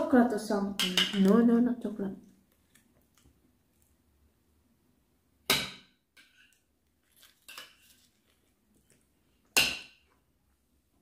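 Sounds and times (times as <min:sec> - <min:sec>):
tableware clinking and clattering: 0:00.8 - 0:01.3, 0:05.5 - 0:06.6.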